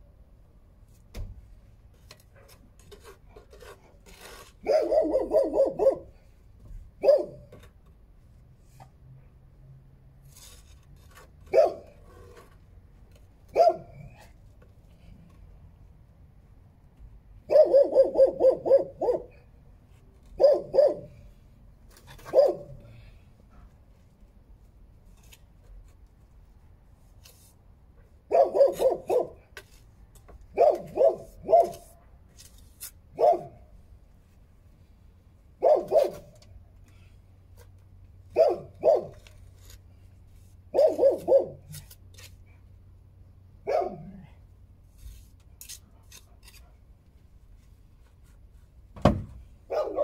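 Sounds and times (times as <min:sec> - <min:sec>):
dog barking: 0:04.6 - 0:06.1, 0:07.0 - 0:07.4, 0:11.5 - 0:11.9, 0:13.5 - 0:14.1, 0:17.5 - 0:19.4, 0:20.4 - 0:21.2, 0:22.3 - 0:22.8, 0:28.3 - 0:29.4, 0:30.6 - 0:31.8, 0:33.2 - 0:33.6, 0:35.6 - 0:36.3, 0:38.3 - 0:39.2, 0:40.8 - 0:41.7, 0:43.6 - 0:44.3, 0:49.7 - 0:50.0.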